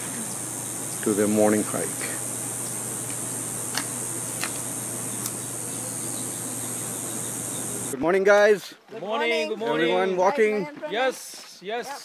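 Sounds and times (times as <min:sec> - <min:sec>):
low steady hum: 0:00.0 - 0:08.0
continuous high-pitched hiss: 0:00.0 - 0:08.8.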